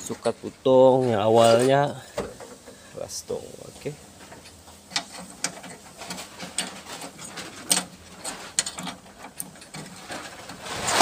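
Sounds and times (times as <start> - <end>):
sheet metal clicking and scraping: 4.2 - 11.0.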